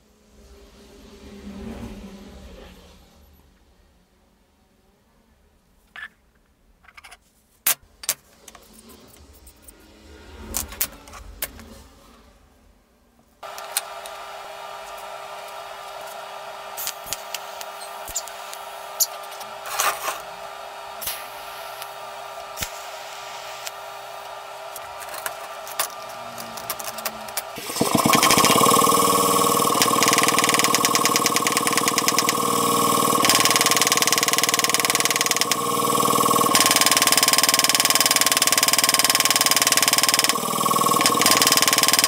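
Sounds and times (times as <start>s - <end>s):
steady machine hum: 13.4s - 42.0s.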